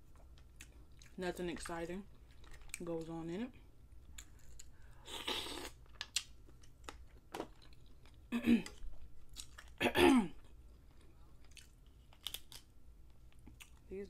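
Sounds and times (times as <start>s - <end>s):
chewing: 0.1s - 1.2s, 2.1s - 2.8s, 4.1s - 9.8s, 10.4s - 12.7s, 13.3s - 13.9s.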